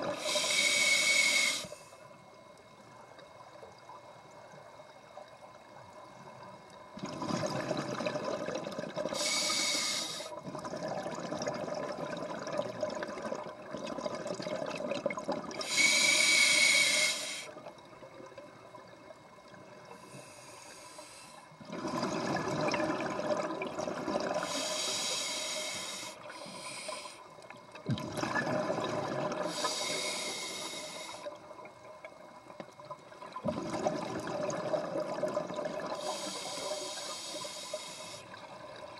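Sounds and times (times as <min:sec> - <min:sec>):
regulator hissing inhalations: 0:00.2 - 0:02.1, 0:09.2 - 0:10.4, 0:15.6 - 0:17.5, 0:20.0 - 0:21.5, 0:24.4 - 0:27.3, 0:29.5 - 0:31.3, 0:36.0 - 0:38.4
exhaled bubbles rushing: 0:07.0 - 0:09.2, 0:10.4 - 0:15.6, 0:21.7 - 0:24.4, 0:27.9 - 0:29.5, 0:33.3 - 0:36.0.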